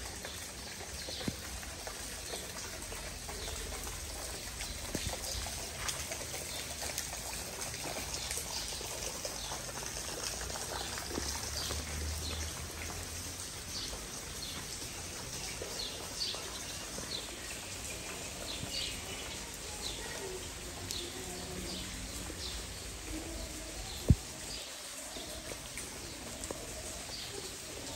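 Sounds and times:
rain falling: 0.0 - 27.9.

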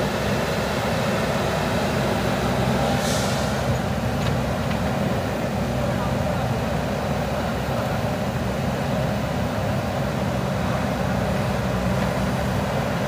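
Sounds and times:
diesel engines running: 0.0 - 13.0
brief hiss: 2.9 - 3.7.

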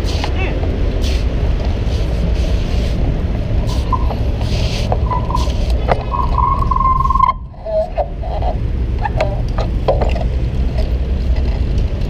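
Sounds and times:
wind and road rumble: 0.0 - 12.0
high squeals: 3.7 - 7.9.

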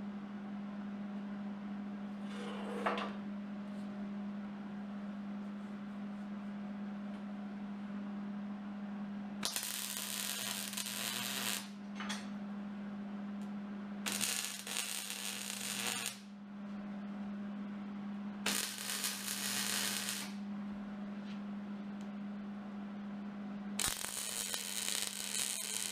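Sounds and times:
steady low hum: 0.0 - 25.9
welder crackling hiss: 9.4 - 11.7, 14.1 - 16.2, 18.5 - 20.4, 23.8 - 25.9.

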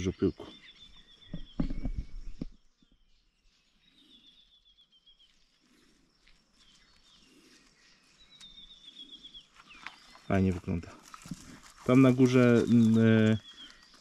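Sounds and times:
bird calling: 6.6 - 14.0.

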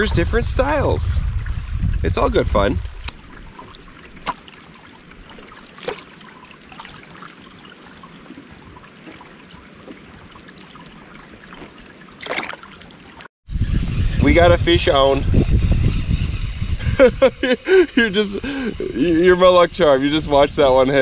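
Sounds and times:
water splashing along canoe hull: 2.6 - 13.3
sharp knocks or splashes: 2.9 - 13.3.

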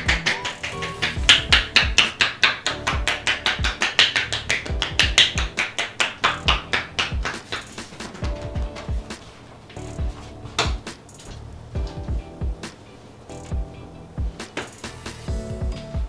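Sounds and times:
hands tapping through towel: 0.0 - 9.4
soft background music: 0.0 - 16.0.

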